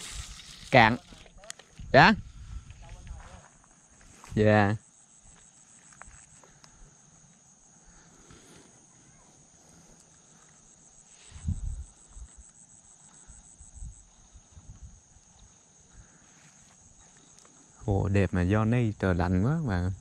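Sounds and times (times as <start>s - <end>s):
insects chirping: 0.0s - 20.0s
low microphone rumbles: 11.4s - 12.3s.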